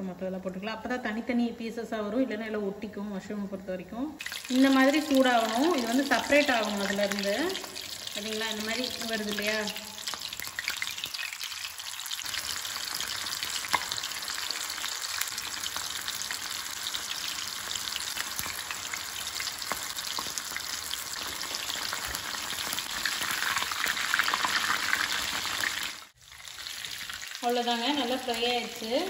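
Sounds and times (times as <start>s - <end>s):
battered food deep-frying in oil: 4.2s - 29.0s.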